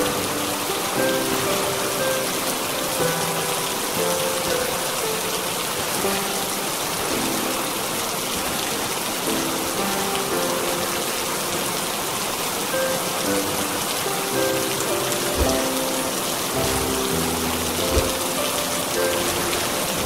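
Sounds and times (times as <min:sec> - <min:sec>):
soft music of slow held notes: 0:00.0 - 0:20.0
steady rain: 0:00.0 - 0:20.0.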